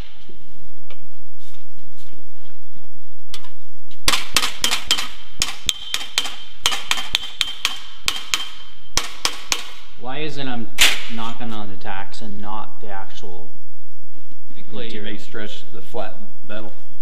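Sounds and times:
hammer tapping steel ringing: 4.6 - 9.8.

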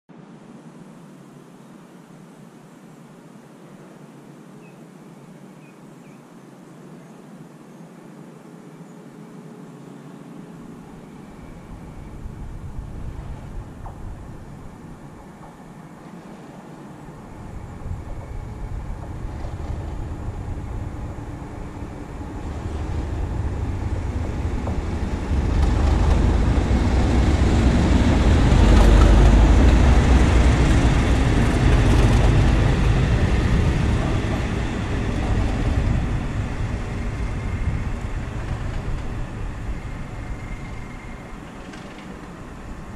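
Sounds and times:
wheels on rail: 10.6 - 42.9
diesel locomotive engine rumble: 10.7 - 42.9.

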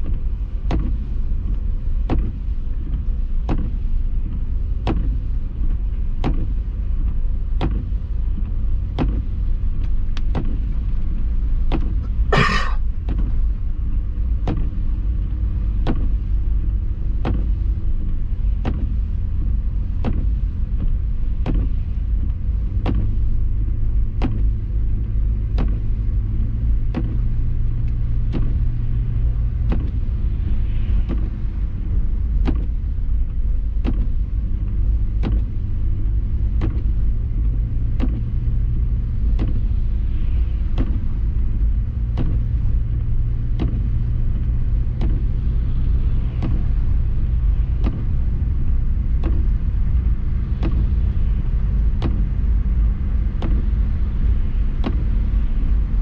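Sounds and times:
car engine and tyre rumble: 0.0 - 56.0.

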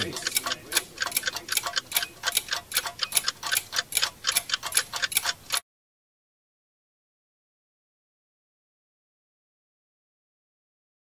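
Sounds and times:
rapid ticking: 0.0 - 5.6.

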